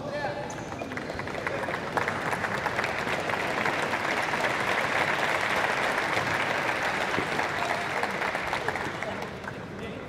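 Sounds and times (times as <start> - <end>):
crowd applauding: 0.6 - 9.9.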